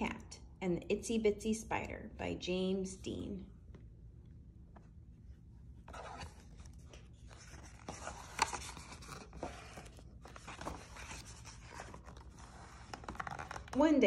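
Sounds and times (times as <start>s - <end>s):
paper pages turning: 5.8s - 13.8s.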